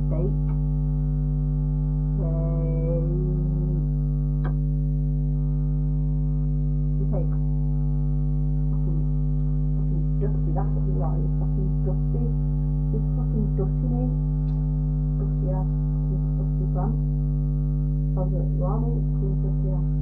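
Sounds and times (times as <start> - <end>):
quiet talking: 0.0 - 0.5, 2.2 - 4.6, 7.0 - 7.4, 8.7 - 9.1, 9.8 - 14.2, 15.2 - 17.0, 18.2 - 20.0
electrical mains hum: 0.0 - 20.0.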